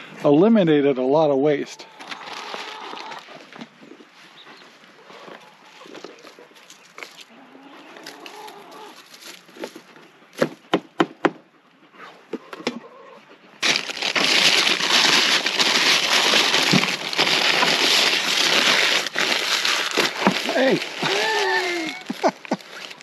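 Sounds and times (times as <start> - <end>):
paper bag crinkling: 2.0 - 3.4, 13.6 - 23.0.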